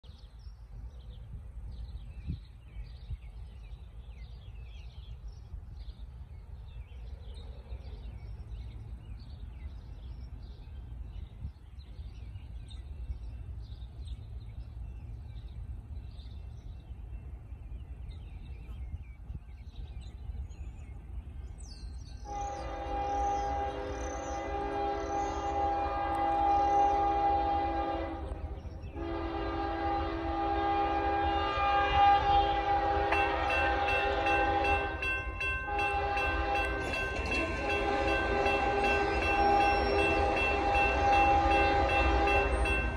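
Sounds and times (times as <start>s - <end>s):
birds chirping: 0.0s - 42.9s
locomotive air horn chord: 22.2s - 42.9s.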